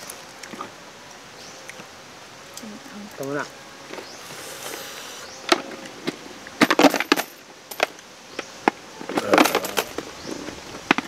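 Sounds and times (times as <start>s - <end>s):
coins clinking in plastic bottle: 9.2s - 10.0s.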